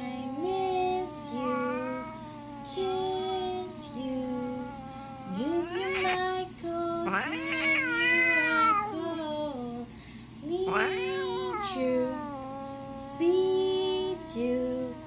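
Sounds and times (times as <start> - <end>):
cat meowing: 3.7 - 6.4, 7.0 - 8.9, 10.7 - 13.2.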